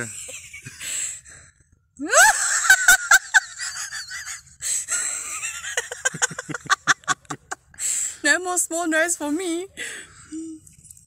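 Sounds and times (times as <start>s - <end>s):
woman laughing hard: 2.0s - 7.8s.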